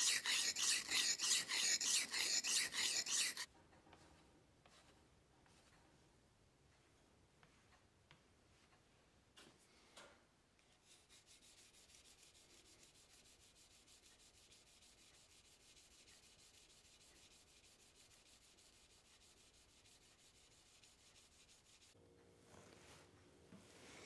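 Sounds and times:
abrasive rubbing on steel: 0.0s - 3.5s.

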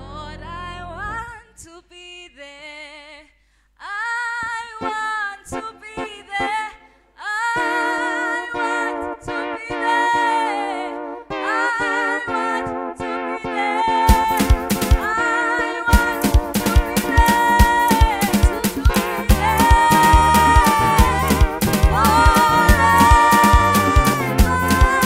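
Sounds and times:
voices singing gospel in harmony: 7.6s - 25.0s.

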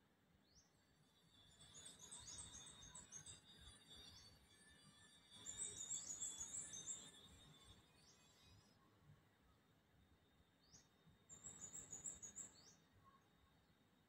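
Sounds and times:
bird chirping: 5.4s - 7.2s, 10.6s - 13.2s.

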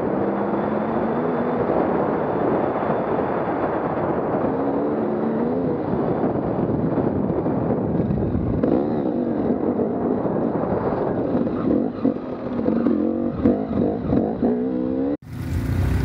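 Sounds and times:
dirt bike engine revving: 8.4s - 16.0s.

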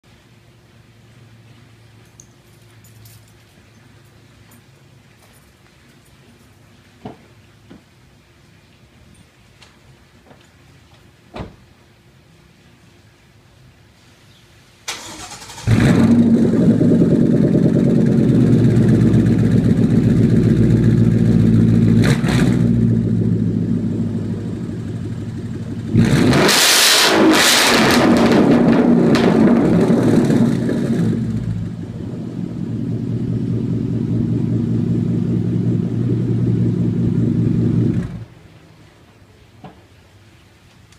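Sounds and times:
car engine starting: 14.8s - 38.4s
car engine idling: 15.0s - 26.5s, 27.9s - 38.4s
car engine revving: 15.0s - 38.3s.

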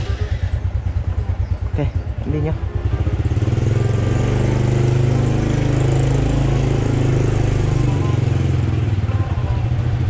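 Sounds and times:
small motorbike engine running: 0.0s - 10.0s.

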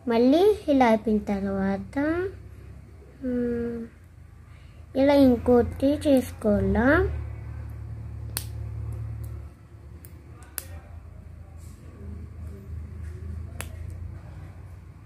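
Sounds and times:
low hum: 0.9s - 15.0s
plastic sticks snapping together: 7.7s - 9.4s, 10.0s - 10.8s, 13.5s - 14.0s.

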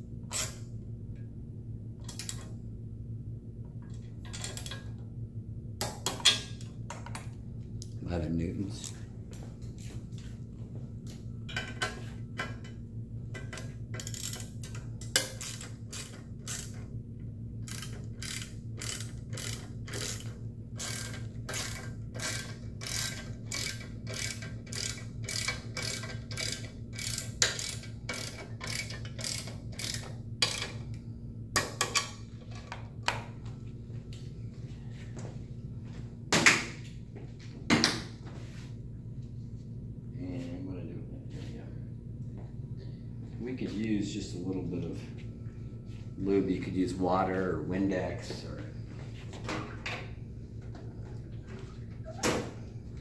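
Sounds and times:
steady low hum: 0.0s - 53.0s
socket ratchet clicking: 17.6s - 20.2s.

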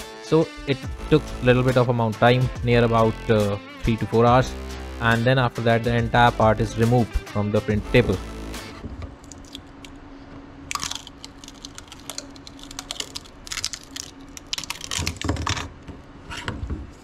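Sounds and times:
plastic part clicks and crunches: 10.7s - 15.7s.

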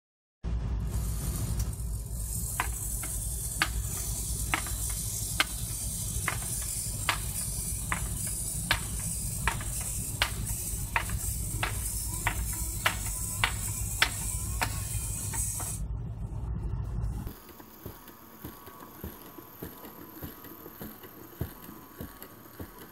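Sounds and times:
robot motor hum and hiss: 0.9s - 15.8s, 17.3s - 22.9s
robot legs clicking: 1.6s - 15.8s.

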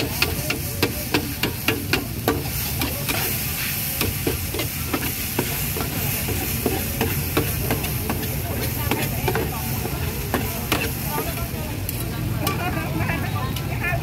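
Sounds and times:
hiss of cooking: 0.0s - 13.9s.

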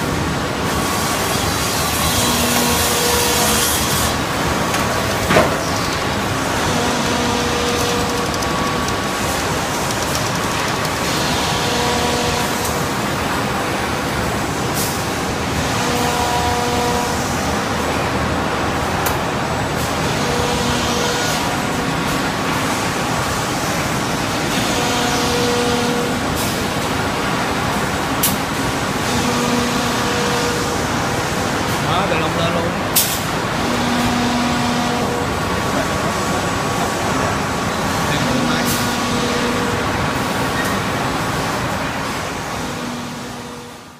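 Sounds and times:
steady machinery noise: 0.0s - 43.9s
sharp clicks and knocks: 4.7s - 6.3s, 7.0s - 11.1s.

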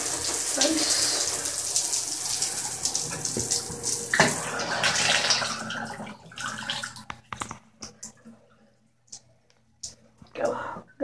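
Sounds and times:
water drips: 0.0s - 4.5s, 5.4s - 11.0s
shower spraying water: 0.0s - 6.9s
shower valve clunk: 2.8s - 4.5s.

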